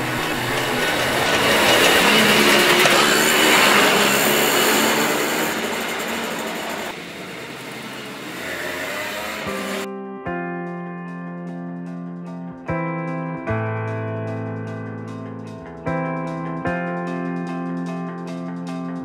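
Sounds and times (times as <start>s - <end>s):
two-stroke scooter engine buzzing: 0.0s - 9.9s.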